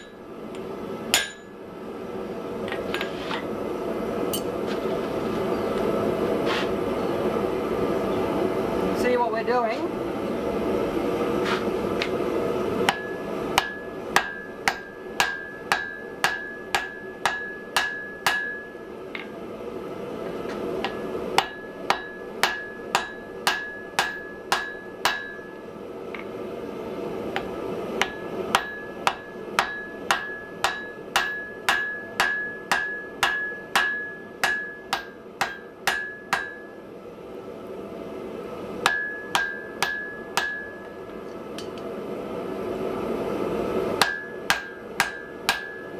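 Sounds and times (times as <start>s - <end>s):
hammer striking iron on anvil: 0.0s - 0.2s, 1.1s - 1.6s, 12.9s - 19.3s, 20.8s - 25.6s, 27.4s - 36.8s, 38.8s - 41.0s, 44.0s - 45.9s.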